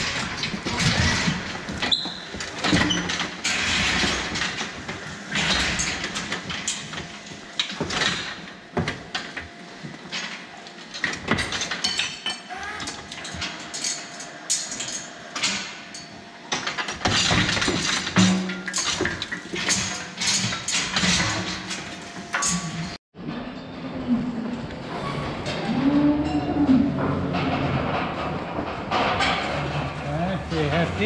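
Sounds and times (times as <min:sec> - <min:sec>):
metallic clanks and knocks: 0:13.1 - 0:23.6, 0:26.2 - 0:30.8.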